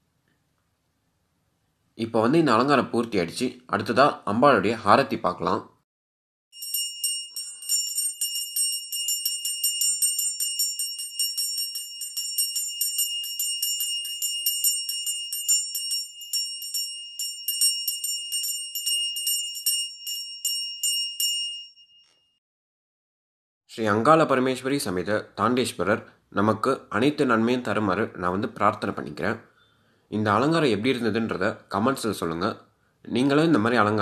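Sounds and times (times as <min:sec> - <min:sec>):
hand bell ringing: 0:06.6 - 0:22.3.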